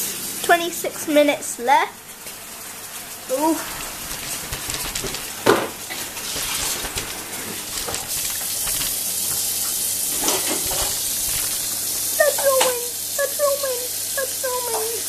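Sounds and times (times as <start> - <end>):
tap running into sink: 3.3 - 13.0.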